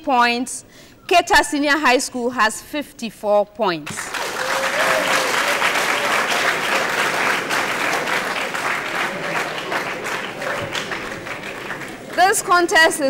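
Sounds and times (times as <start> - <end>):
audience clapping and cheering: 3.9 - 12.7.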